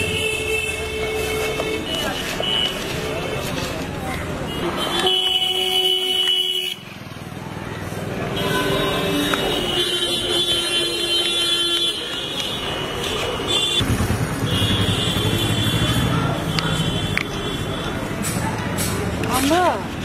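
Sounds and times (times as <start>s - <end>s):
vehicle horns honking: 0.0s - 3.7s, 4.4s - 7.0s, 8.3s - 18.1s
traffic rumble: 0.0s - 20.0s.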